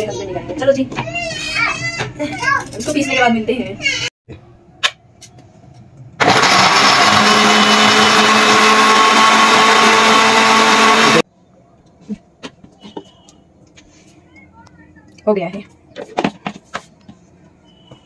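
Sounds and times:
electric blender motor running: 6.2 - 11.2.

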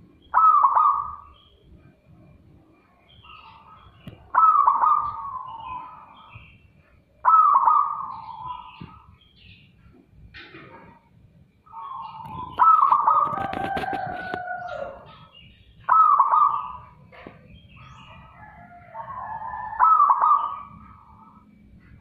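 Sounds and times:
faint bird chirps: 0.0 - 10.1, 10.7 - 22.0
dove cooing: 0.3 - 1.4, 3.5 - 6.2, 7.2 - 9.1, 11.7 - 21.4.

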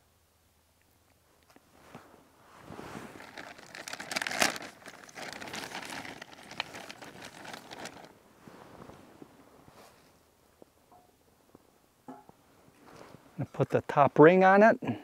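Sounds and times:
bag rustling and crinkling: 1.7 - 10.2.

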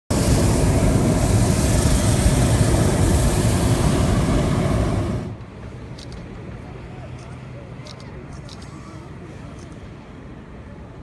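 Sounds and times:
propane burner firing: 0.1 - 5.4.

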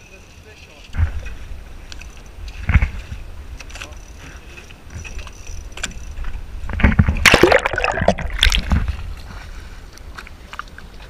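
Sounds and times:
water splashing against boat: 7.2 - 9.0.

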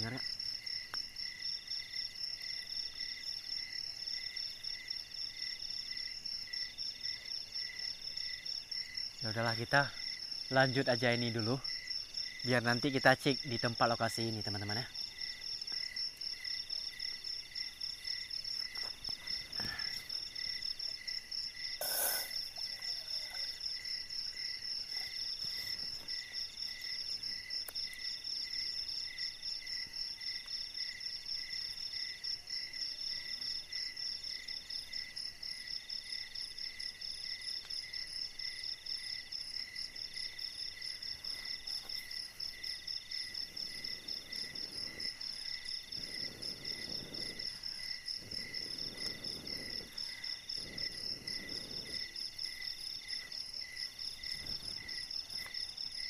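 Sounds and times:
crickets and insects trilling: 0.0 - 56.0.

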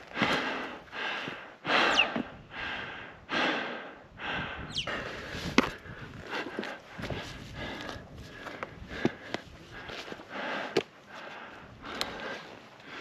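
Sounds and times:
person breathing hard: 0.0 - 13.0.

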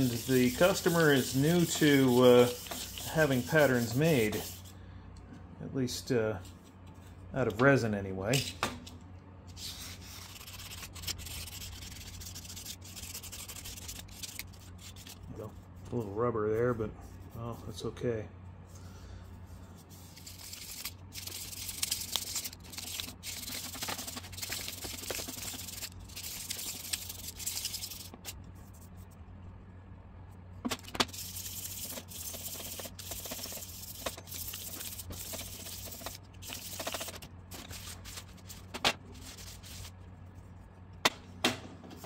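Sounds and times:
hands rubbing resin object: 0.0 - 4.7, 9.6 - 15.3, 19.8 - 29.1, 31.1 - 40.5.

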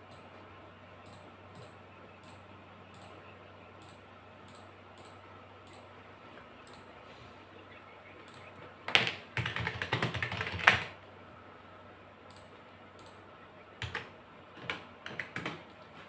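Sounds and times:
computer keyboard typing: 8.3 - 11.0, 13.8 - 16.0.

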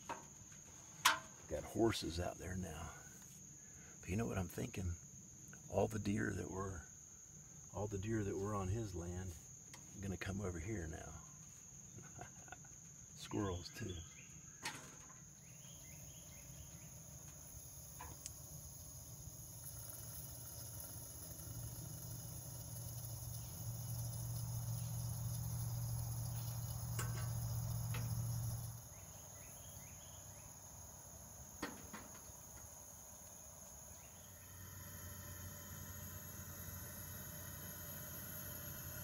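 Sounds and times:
insects chirring: 0.0 - 39.0
camp stove burner rushing: 15.9 - 28.9, 34.2 - 39.0.

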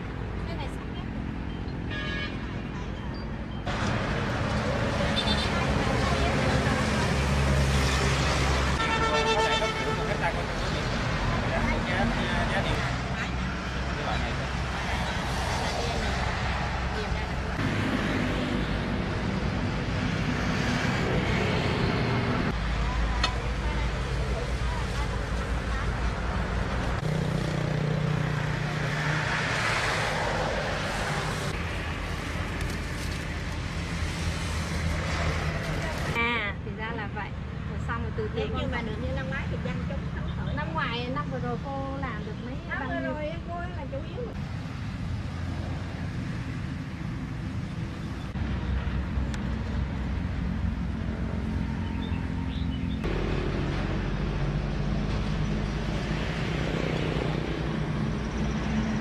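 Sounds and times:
vehicle passing on highway: 3.7 - 36.2.

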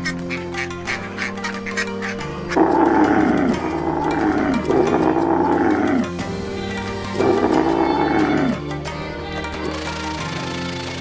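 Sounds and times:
camel calling: 0.0 - 6.2, 7.1 - 8.6
background music: 0.0 - 11.0.

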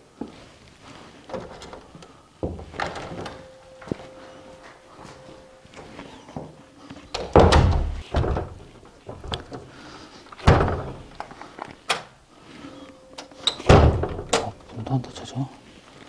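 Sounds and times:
door shutting heavy thud: 1.3 - 3.4, 7.1 - 9.8, 10.4 - 11.3, 13.5 - 14.6.

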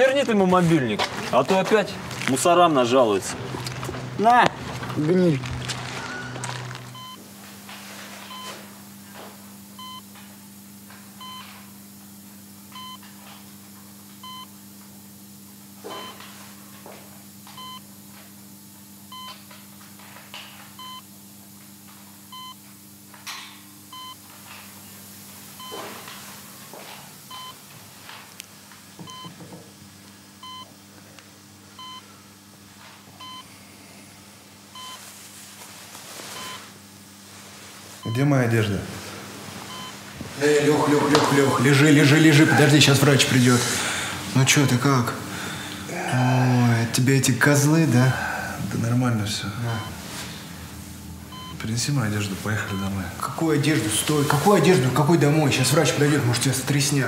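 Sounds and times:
patient monitor beeping: 2.9 - 7.2, 8.1 - 8.6, 9.8 - 10.1, 11.2 - 11.7, 12.7 - 13.1, 14.2 - 14.6, 15.9 - 16.4, 17.5 - 17.9, 19.1 - 19.4, 20.8 - 21.1, 22.3 - 22.6, 23.9 - 24.2, 25.6 - 26.2, 27.3 - 27.6, 29.0 - 29.4, 30.4 - 30.7, 31.8 - 32.1, 33.2 - 33.5, 34.8 - 35.1, 36.3 - 36.7, 38.0 - 38.7, 39.6 - 45.8, 49.5 - 50.2, 51.3 - 54.8
low steady hum: 30.0 - 57.0.

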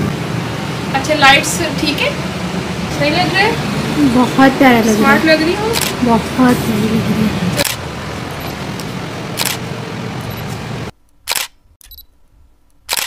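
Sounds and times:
low background noise: 0.0 - 13.0
camera shutter clicks: 5.7 - 5.9, 7.6 - 7.8, 9.4 - 9.6, 11.3 - 12.0.

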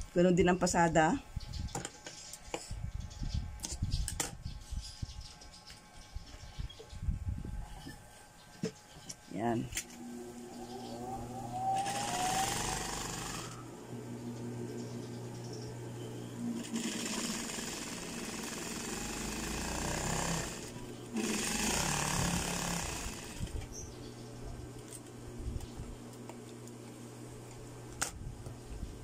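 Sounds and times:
sewing machine motor hum: 9.8 - 23.8
sewing machine stitching: 11.8 - 13.6, 16.5 - 23.5.

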